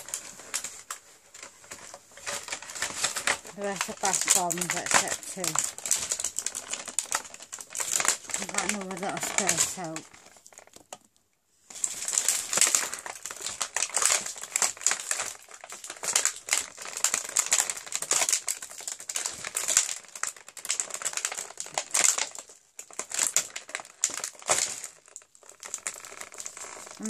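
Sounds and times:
plastic tray crinkling: 0:00.0 - 0:27.0.

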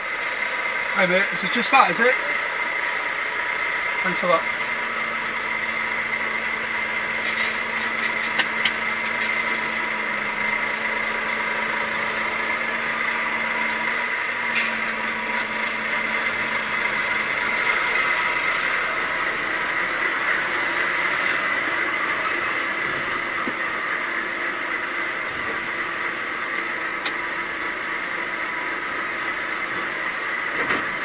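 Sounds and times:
lorry diesel engine idling: 0:00.0 - 0:31.0.

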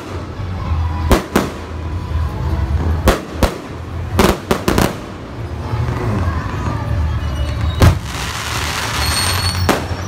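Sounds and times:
fireworks bursting: 0:02.8 - 0:05.5, 0:07.4 - 0:10.0.

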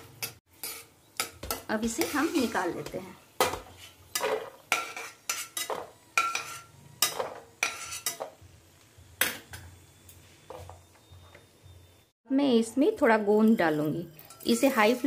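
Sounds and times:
steel spoon clinking on metal: 0:13.4 - 0:15.0.

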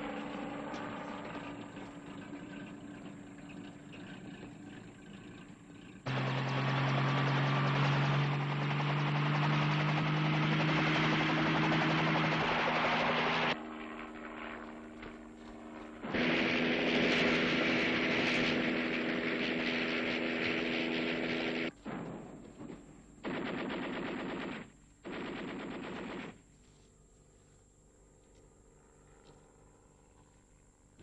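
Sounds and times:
helicopter engine drone: 0:00.0 - 0:21.7
machine gun firing: 0:21.3 - 0:26.5.

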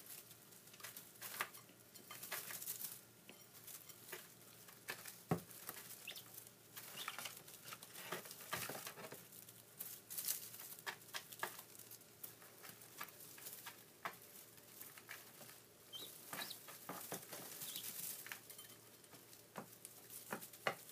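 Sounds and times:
rustling in straw: 0:02.2 - 0:20.9
chicks peeping: 0:05.3 - 0:08.8, 0:10.2 - 0:18.5.

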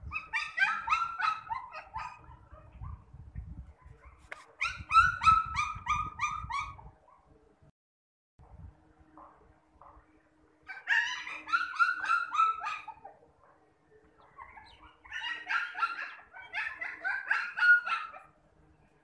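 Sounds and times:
puppy yelping and whimpering: 0:00.0 - 0:03.0, 0:04.0 - 0:06.9, 0:10.7 - 0:13.2, 0:14.4 - 0:18.3.

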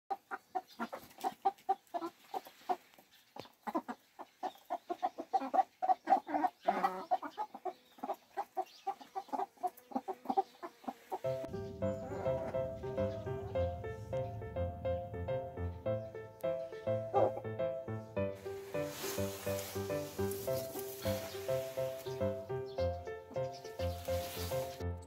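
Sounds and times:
hens clucking: 0:00.1 - 0:24.8
background music: 0:11.3 - 0:25.0.

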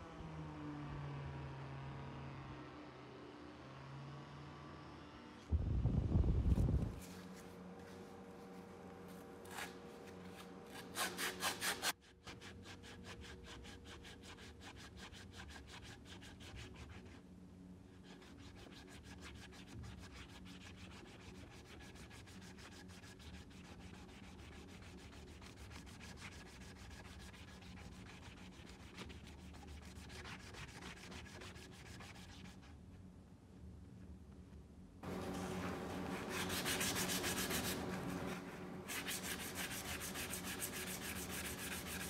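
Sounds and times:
sandpaper rasping on wood: 0:09.4 - 0:17.2, 0:18.0 - 0:32.6, 0:35.1 - 0:42.0.

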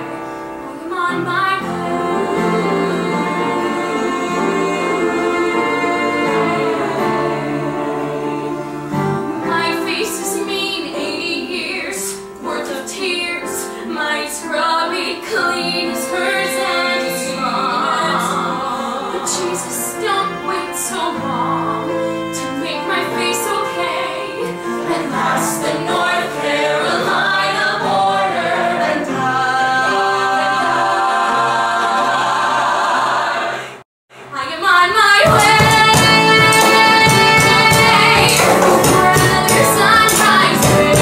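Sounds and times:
violin: 0:00.0 - 0:29.3, 0:34.4 - 0:41.0
ensemble singing in chorus: 0:00.7 - 0:12.8, 0:13.9 - 0:33.8, 0:35.2 - 0:41.0
acoustic guitars: 0:35.2 - 0:41.0.

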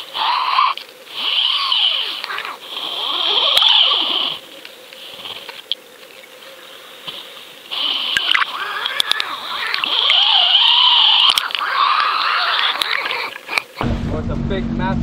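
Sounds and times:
sharp clicks: 0:08.2 - 0:13.7.

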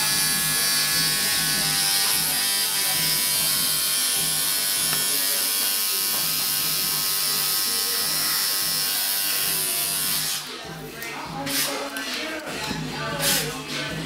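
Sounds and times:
tattoo machine buzzing: 0:00.0 - 0:10.5.

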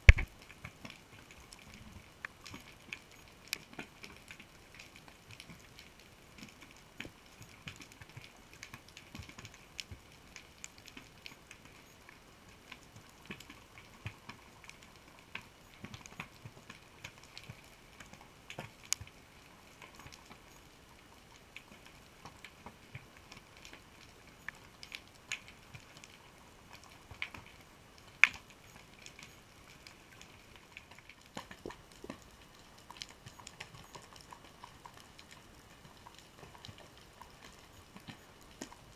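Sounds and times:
faint steady whine: 0:00.0 - 0:38.9
underwater clicks and crackles: 0:00.0 - 0:38.9.

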